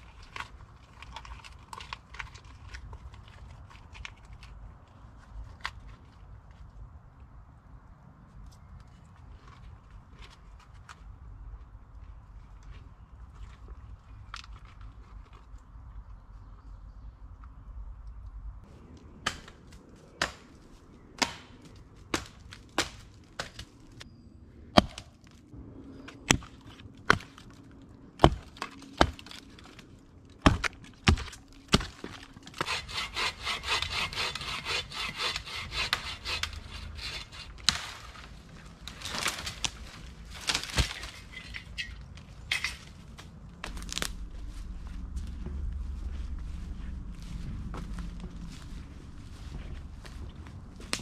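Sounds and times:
hatchet chopping limbs: 0:19.1 - 0:24.1, 0:24.7 - 0:25.4, 0:26.1 - 0:44.2, 0:50.8 - 0:51.0
hand saw cutting wood: 0:32.5 - 0:37.8.

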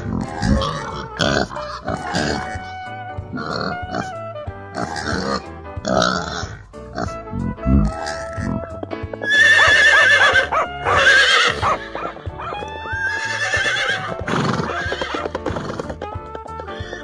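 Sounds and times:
horse whinnying: 0:00.0 - 0:04.2, 0:07.6 - 0:17.0
background music: 0:00.0 - 0:17.0.

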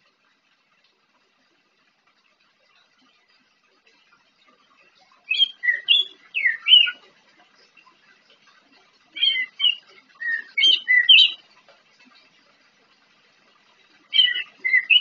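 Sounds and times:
thrush whistled song: 0:05.3 - 0:07.0, 0:09.2 - 0:11.4, 0:14.1 - 0:15.0.

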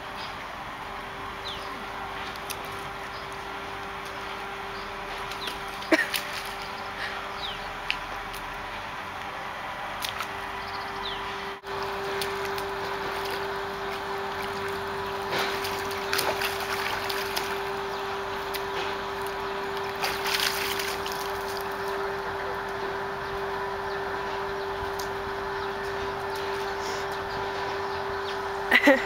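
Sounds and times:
steady low hum: 0:00.0 - 0:29.0
water splashing and sloshing: 0:02.0 - 0:22.8.

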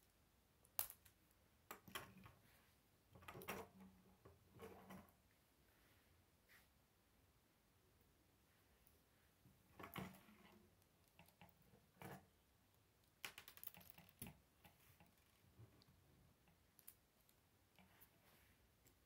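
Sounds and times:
plastic toy pieces clicking: 0:13.1 - 0:14.4.

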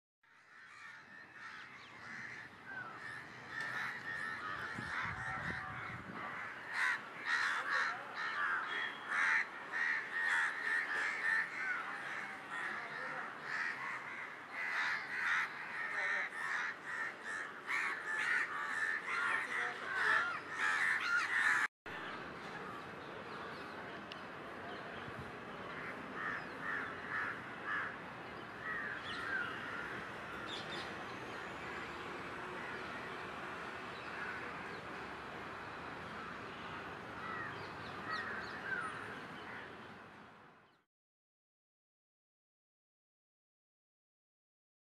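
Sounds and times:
crows cawing: 0:00.3 - 0:21.7, 0:25.7 - 0:28.0, 0:28.6 - 0:30.8, 0:34.0 - 0:34.8, 0:37.2 - 0:39.7.

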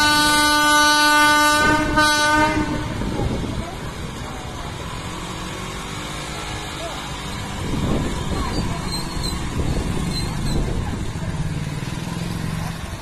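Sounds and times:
locomotive horn blasts: 0:00.0 - 0:03.2
approaching train rumble: 0:00.0 - 0:13.0.

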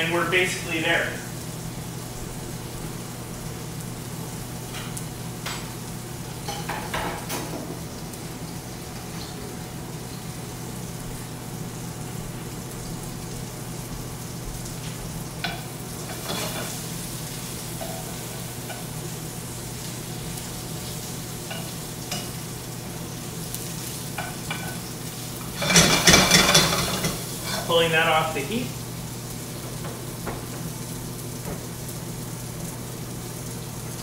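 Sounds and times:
vegetables sizzling in a pan: 0:00.0 - 0:34.0
pan rattling: 0:25.6 - 0:27.2.

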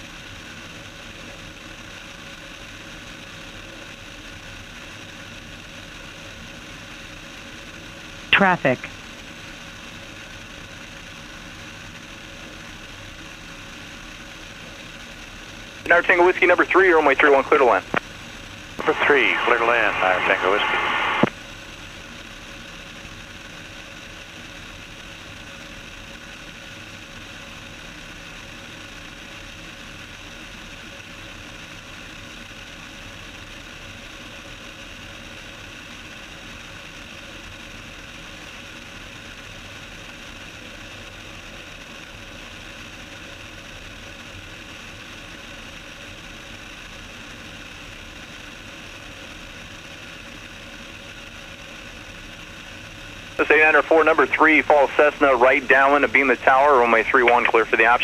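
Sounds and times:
airplane engine and propeller droning: 0:10.6 - 0:31.6, 0:47.2 - 0:58.0.

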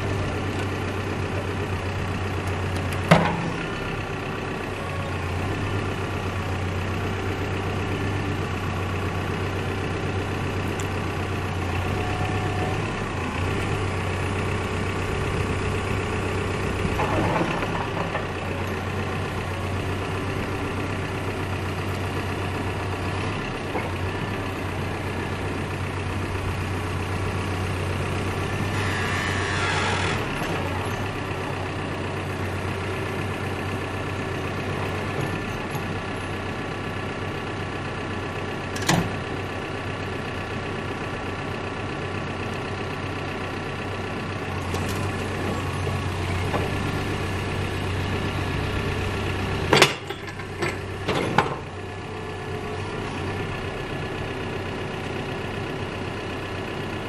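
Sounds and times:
diesel engine running: 0:00.0 - 0:57.0
hydraulic boom working: 0:28.7 - 0:30.7.

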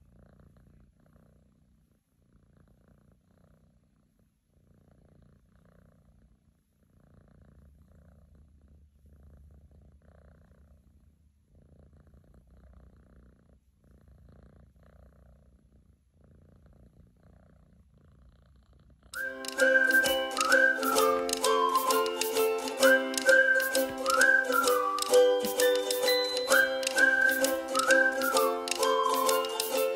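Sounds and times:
cat purring softly: 0:00.0 - 0:19.2
music: 0:19.2 - 0:29.9.

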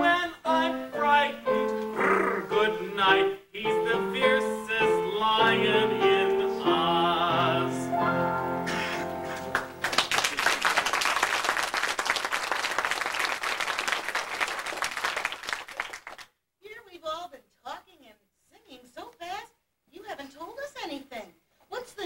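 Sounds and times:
person singing with piano: 0:00.0 - 0:09.2
audience applauding: 0:09.2 - 0:16.3.

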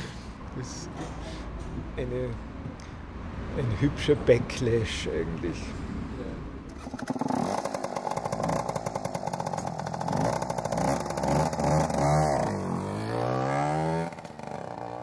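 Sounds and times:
small motorcycle engine revving: 0:06.7 - 0:15.0.

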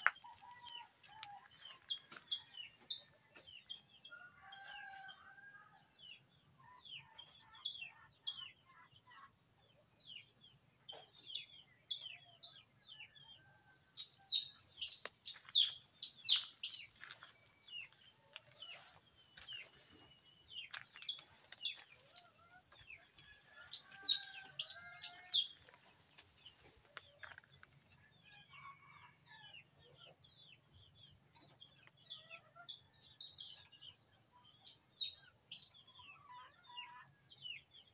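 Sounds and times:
birds chirping: 0:13.4 - 0:27.4.

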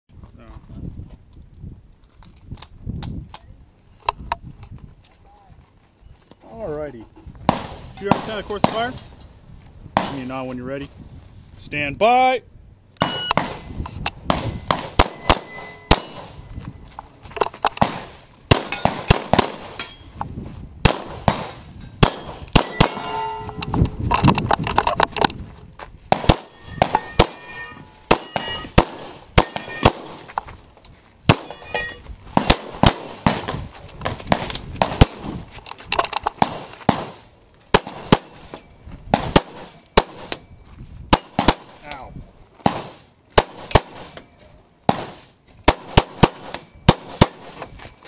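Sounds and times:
pistol shots: 0:13.0 - 0:13.7, 0:14.3 - 0:16.4, 0:17.8 - 0:19.8, 0:20.8 - 0:23.2, 0:26.1 - 0:30.3, 0:31.3 - 0:31.6, 0:32.4 - 0:33.6, 0:36.4 - 0:38.4, 0:39.1 - 0:40.4, 0:41.1 - 0:41.8, 0:42.6 - 0:44.2, 0:44.9 - 0:47.6
bullets pinging on steel targets: 0:14.4 - 0:16.4, 0:18.6 - 0:20.1, 0:21.8 - 0:23.7, 0:26.1 - 0:30.2, 0:31.3 - 0:32.7, 0:37.8 - 0:38.8, 0:41.1 - 0:42.1, 0:43.6 - 0:44.3, 0:46.1 - 0:47.8.

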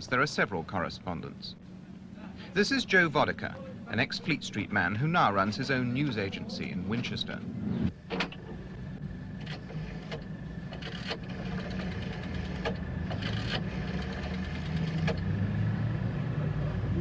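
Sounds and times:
steady low hum: 0:00.0 - 0:17.0
rotary dial ticking: 0:09.4 - 0:15.2.

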